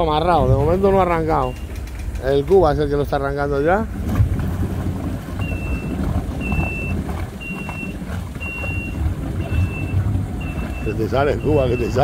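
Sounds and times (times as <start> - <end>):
jet ski engine rumbling: 0.0 - 12.0
high warning beep: 1.2 - 1.8, 5.4 - 12.0.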